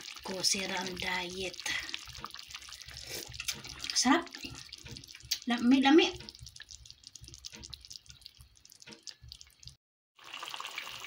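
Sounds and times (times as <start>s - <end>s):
curry bubbling in a pot: 0.0s - 11.0s
small pops and ticks: 4.8s - 5.5s, 6.1s - 9.8s.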